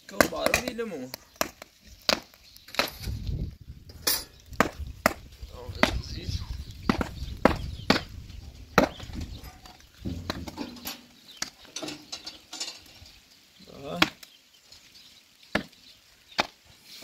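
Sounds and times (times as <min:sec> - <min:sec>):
metal knocks and taps: 0:10.0 - 0:11.1.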